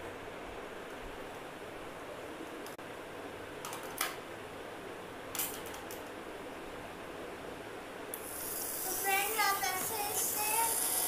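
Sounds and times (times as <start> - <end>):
background hiss: 8.1 - 11.0.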